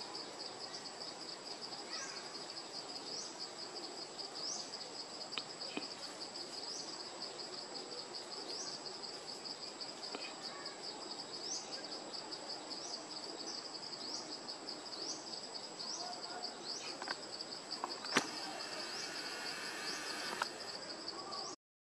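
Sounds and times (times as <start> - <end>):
insects trilling: 0.0 - 21.6
rising insect chirp: 12.9 - 21.6
light clicks: 17.8 - 20.8
thin whine: 17.8 - 20.8.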